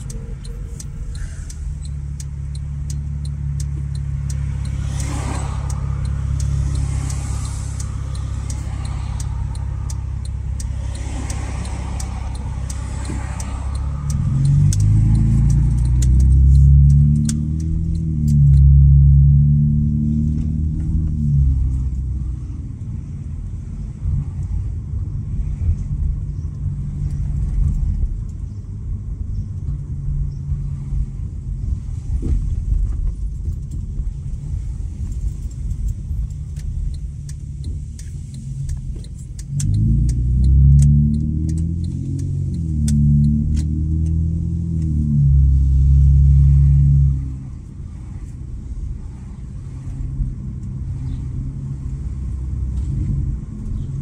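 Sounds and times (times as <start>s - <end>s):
car exhaust revving: 0.0s - 54.0s.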